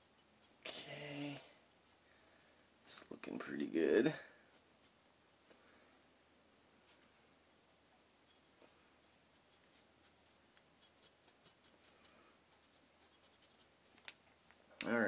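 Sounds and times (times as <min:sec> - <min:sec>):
cotton swab scrubbing: 0:06.8 - 0:14.5.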